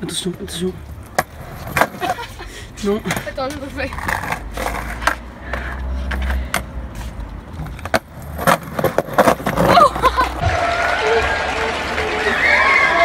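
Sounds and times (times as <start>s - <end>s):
skateboard clattering on concrete: 1.0s - 2.3s, 3.0s - 5.2s, 7.6s - 10.4s.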